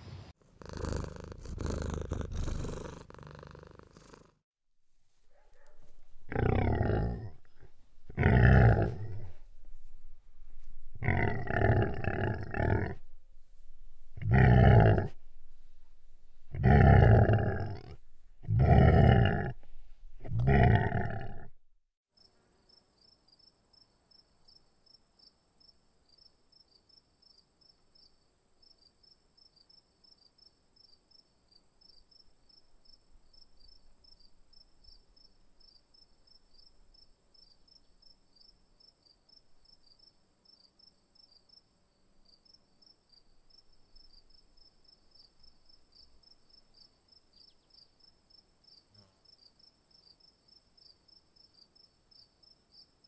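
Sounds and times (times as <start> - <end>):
crickets chirping: 22.2 - 53.0.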